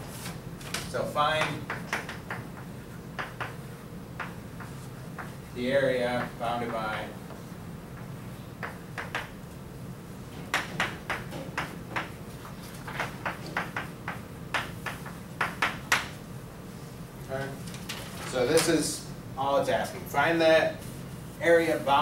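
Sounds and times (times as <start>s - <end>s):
steady low hum: 0.0s - 22.0s
chalk tapping and scratching: 1.3s - 7.5s, 10.5s - 16.2s.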